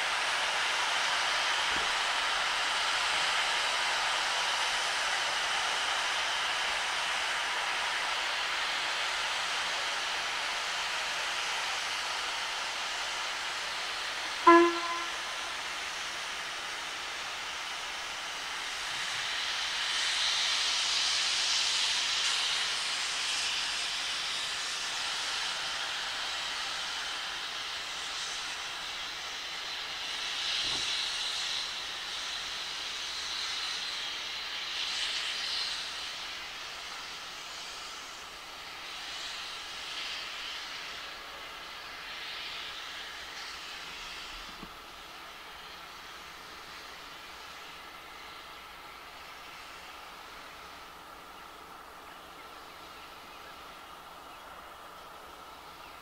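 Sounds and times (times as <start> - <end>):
steam hissing from drain cocks: 0.0 - 56.0
steam locomotive whistle toot: 14.2 - 16.1.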